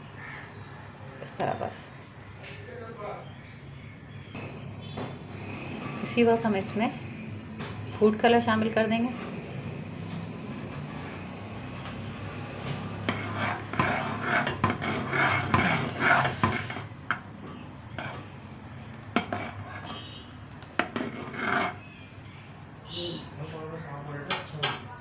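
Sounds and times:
spoon scraping a saucepan: 12.7s - 16.9s, 17.9s - 18.4s, 19.1s - 22.0s.

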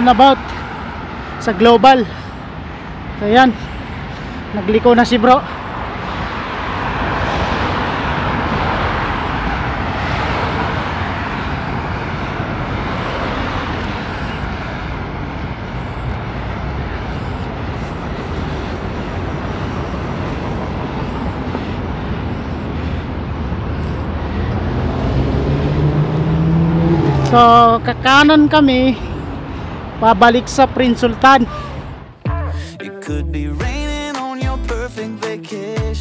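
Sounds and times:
road traffic rushing: 0.0s - 36.0s.

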